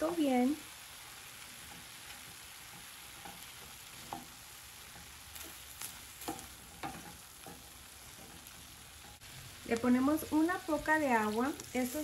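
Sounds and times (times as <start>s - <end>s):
food sizzling in a pan: 0.0s - 12.0s
utensil scraping and tapping pan: 1.6s - 9.2s.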